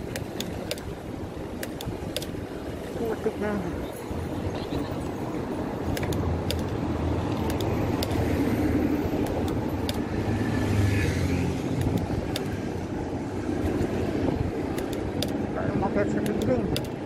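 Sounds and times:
road traffic rumble: 0:00.0 - 0:17.0
sharp ticks: 0:01.5 - 0:02.4, 0:05.9 - 0:08.3, 0:09.2 - 0:10.1, 0:11.7 - 0:12.6, 0:14.7 - 0:15.4, 0:16.0 - 0:17.0.

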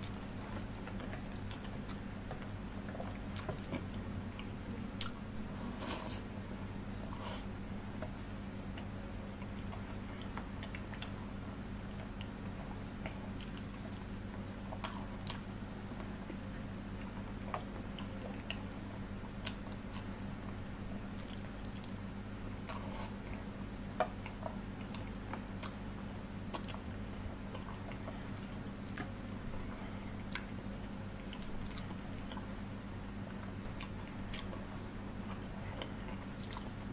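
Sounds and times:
steady low hum: 0:00.0 - 0:36.9
chewing and biting: 0:08.0 - 0:11.2, 0:11.8 - 0:20.6, 0:21.2 - 0:29.2, 0:30.2 - 0:30.6, 0:31.2 - 0:32.6, 0:33.3 - 0:36.9.

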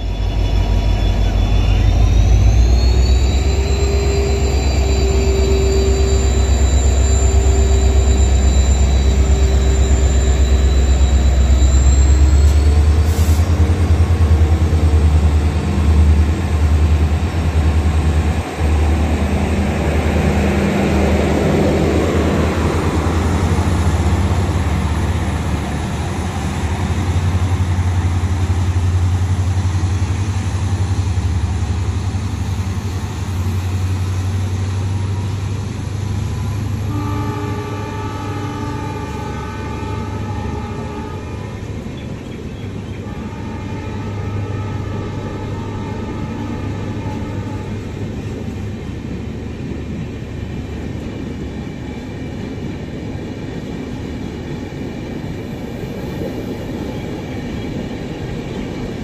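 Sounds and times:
diesel locomotive engine rumble: 0:00.0 - 0:59.0
train wheels on rails: 0:37.6 - 0:59.0.

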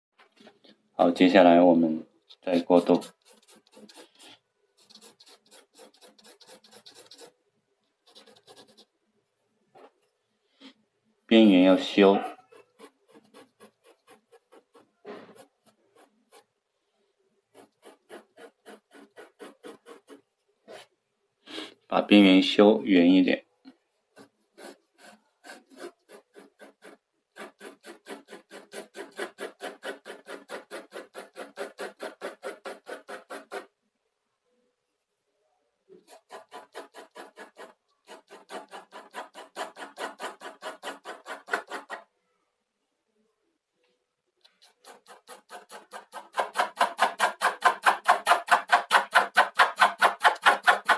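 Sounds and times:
pencil scratching on paper: 0:02.3 - 0:08.9, 0:10.6 - 0:16.6, 0:17.4 - 0:21.6, 0:24.1 - 0:33.8, 0:35.9 - 0:42.1, 0:44.5 - 0:50.9.

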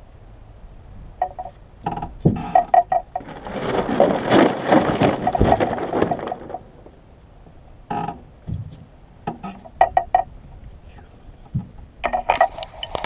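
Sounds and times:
fish thrashing in plastic cooler: 0:03.2 - 0:07.0.

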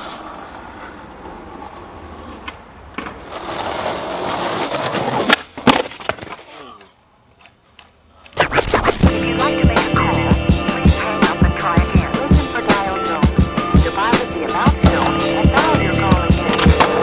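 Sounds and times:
skateboard popping and landing clacks: 0:00.0 - 0:06.6, 0:14.9 - 0:17.0
skateboard wheels rolling on pavement: 0:00.0 - 0:08.4, 0:11.0 - 0:17.0.

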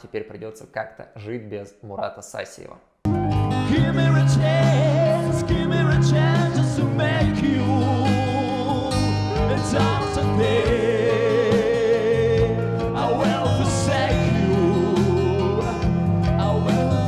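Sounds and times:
guitar accompaniment: 0:03.1 - 0:17.0
person singing: 0:03.5 - 0:17.0.

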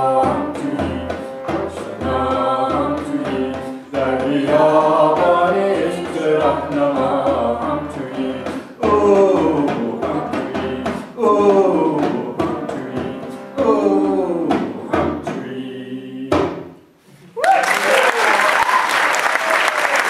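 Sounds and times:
frame drum beating: 0:00.0 - 0:15.5
voices singing a chant: 0:00.0 - 0:16.6.

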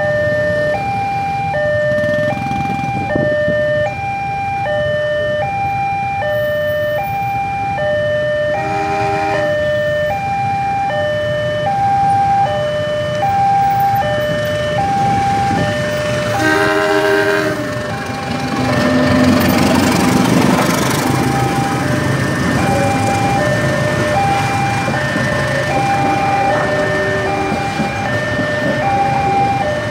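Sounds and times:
level crossing alarm two-tone: 0:00.0 - 0:19.7, 0:20.6 - 0:29.9
locomotive engine rumble: 0:08.0 - 0:29.9
diesel locomotive horn: 0:08.5 - 0:09.8, 0:15.1 - 0:19.8, 0:22.4 - 0:29.4.

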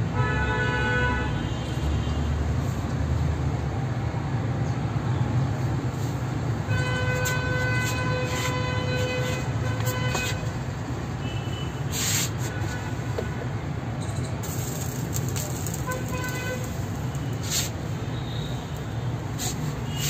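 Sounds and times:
gas torch roaring: 0:11.8 - 0:20.0
crackling: 0:14.2 - 0:20.0.

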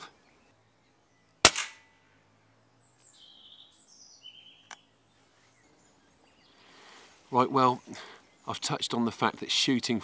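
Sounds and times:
small birds chirping: 0:00.0 - 0:10.0
air rifle shot: 0:01.4 - 0:01.9.

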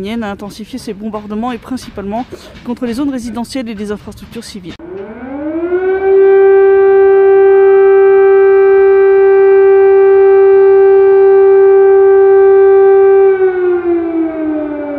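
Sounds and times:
air-raid siren wailing: 0:04.8 - 0:14.9.

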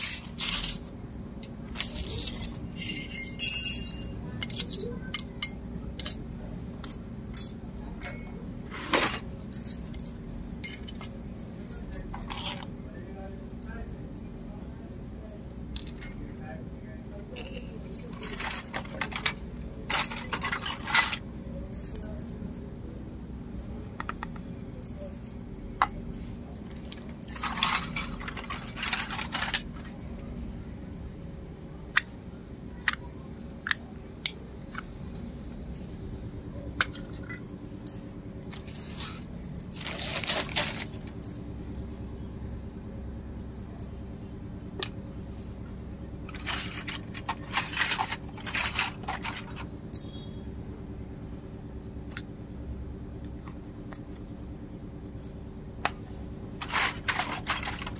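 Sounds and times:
metal utensils clinking on concrete: 0:00.0 - 0:13.0, 0:17.2 - 0:30.3, 0:35.8 - 0:41.4, 0:46.2 - 0:50.4, 0:56.2 - 0:57.9.

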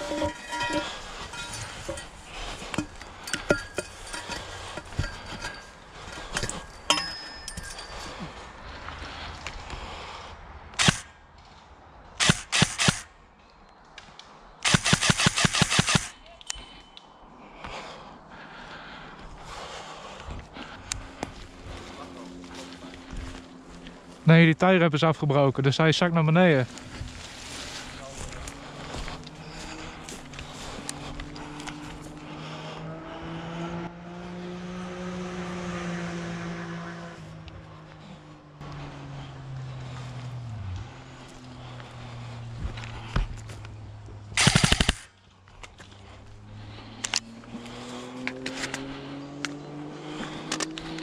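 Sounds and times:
engine droning: 0:00.0 - 0:13.0, 0:14.7 - 0:51.0
airsoft electric gun firing: 0:10.8 - 0:11.0, 0:12.2 - 0:13.1, 0:14.6 - 0:16.1, 0:44.4 - 0:45.1.

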